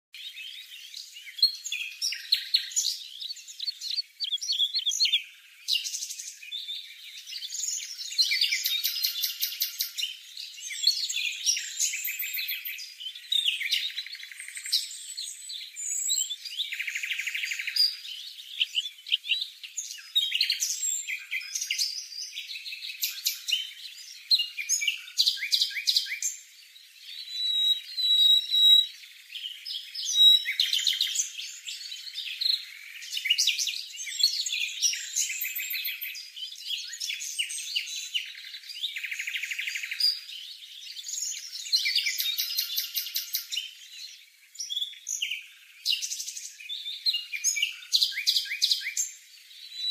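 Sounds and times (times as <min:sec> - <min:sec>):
nestlings chirping and trilling: 0:01.4 - 0:05.2, 0:27.1 - 0:28.9.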